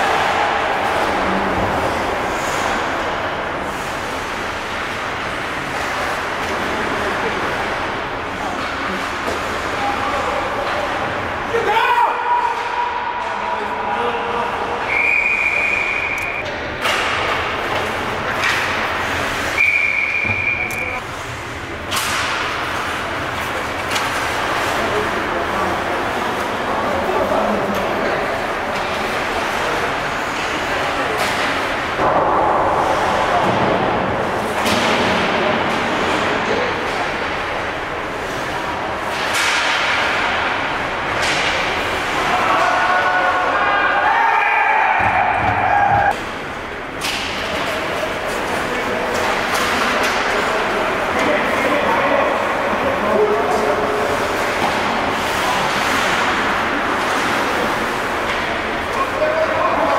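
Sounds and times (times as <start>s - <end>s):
referee whistle blasts: 14.9s - 16.4s, 19.6s - 21.0s.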